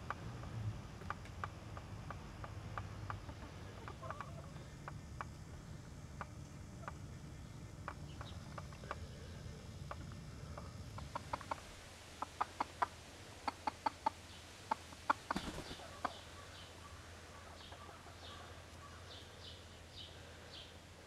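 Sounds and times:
chicken clucking: 0:01.0 - 0:07.2, 0:07.8 - 0:16.6.

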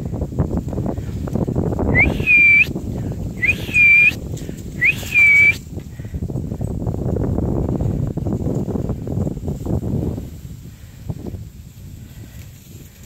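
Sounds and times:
whistle blasts: 0:01.9 - 0:02.7, 0:03.4 - 0:04.2, 0:04.8 - 0:05.6.

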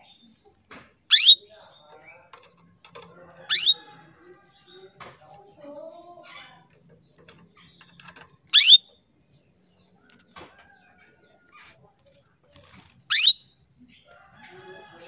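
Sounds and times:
faint bird chirps: 0:00.0 - 0:02.2, 0:02.8 - 0:14.9
canary upward sweeping calls: 0:01.1 - 0:01.4, 0:03.5 - 0:03.8, 0:08.5 - 0:08.8, 0:13.1 - 0:13.4.

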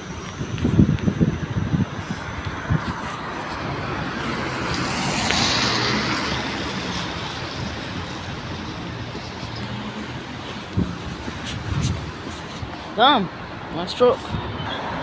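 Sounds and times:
tyres hissing on wet road: 0:03.2 - 0:13.0.

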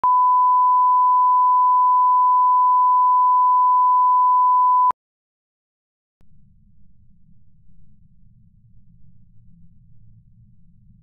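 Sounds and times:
steady test tone beep: 0:00.0 - 0:04.9
faint low rumble: 0:06.2 - 0:11.0.

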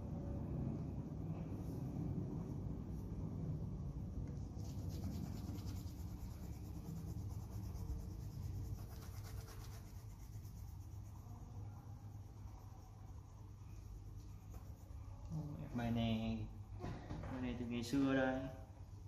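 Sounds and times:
pencil shading on paper: 0:04.6 - 0:15.3.

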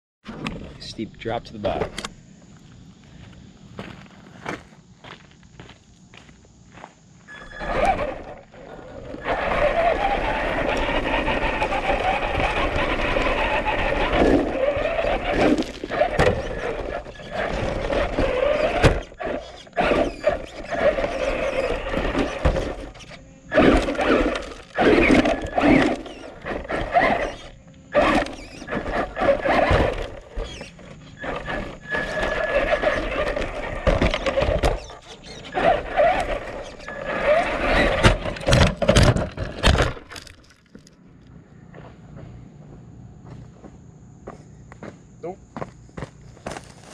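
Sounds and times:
rc car motor whining: 0:07.3 - 0:40.9.

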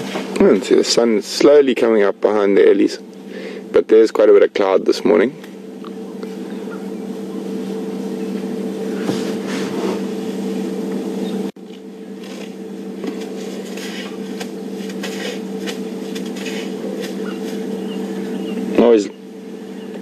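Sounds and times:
steady low hum: 0:00.0 - 0:20.0
dry grass rustling and crackling: 0:11.6 - 0:18.4.

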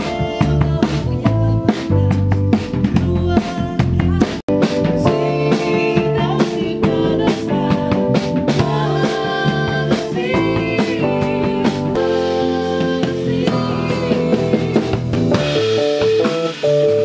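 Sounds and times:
woman singing: 0:00.0 - 0:15.2
rock band playing: 0:00.0 - 0:17.0.

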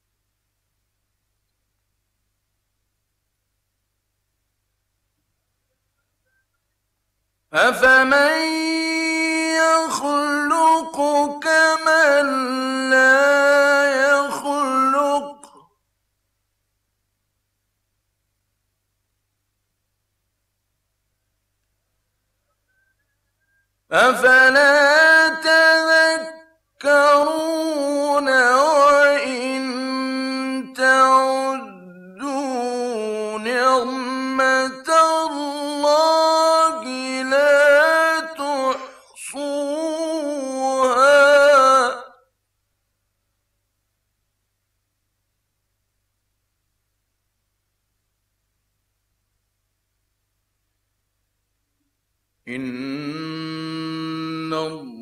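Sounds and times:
man reciting melodically: 0:07.5 - 0:15.7, 0:23.9 - 0:42.2, 0:52.4 - 0:55.0.

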